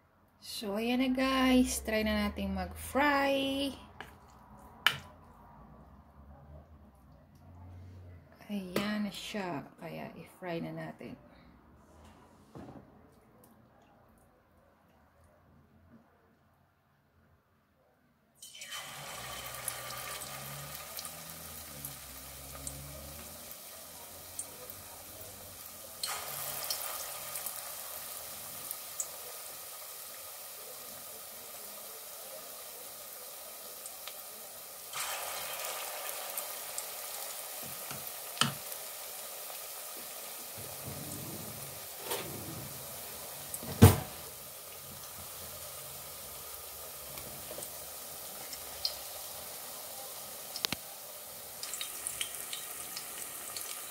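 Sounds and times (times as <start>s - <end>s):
batter sizzling in hot oil: 18.4s - 53.9s.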